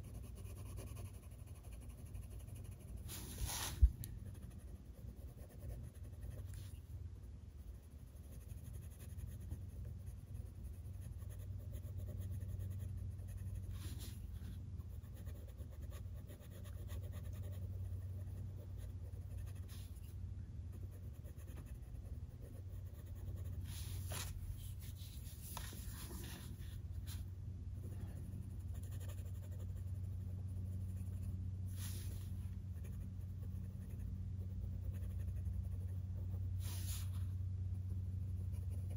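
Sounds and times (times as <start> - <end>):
pencil scratching on paper: 0.0 - 6.8, 8.2 - 20.1, 20.7 - 27.2, 27.8 - 34.1, 34.8 - 37.2
low hum: 17.0 - 38.9.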